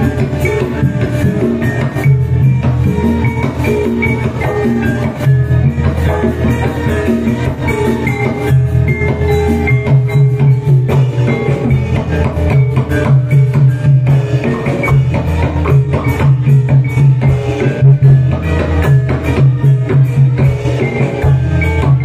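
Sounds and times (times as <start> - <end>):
drums and percussion: 0.0 - 22.0
held melody notes: 0.0 - 22.0.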